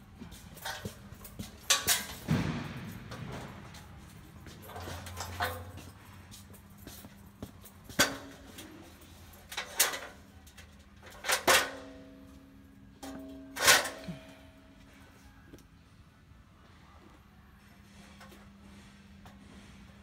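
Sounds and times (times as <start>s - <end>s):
metal objects clattering: 0.6s - 5.9s, 7.9s - 12.1s, 13.0s - 14.3s.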